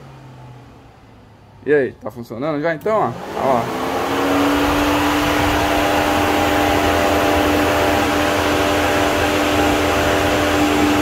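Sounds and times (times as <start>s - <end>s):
cooling fan motor hum: 2.8s - 11.0s
rushing air: 3.6s - 11.0s.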